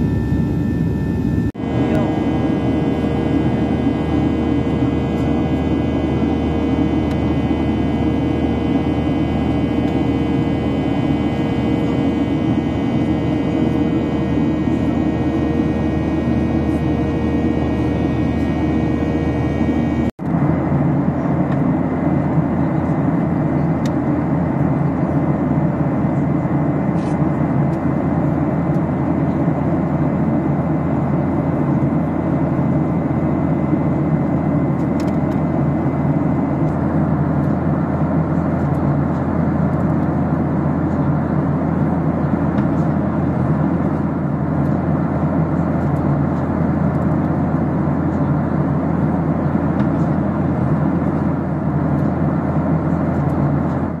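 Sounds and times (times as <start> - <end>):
airplane cabin engine hum: 0.0 - 54.0.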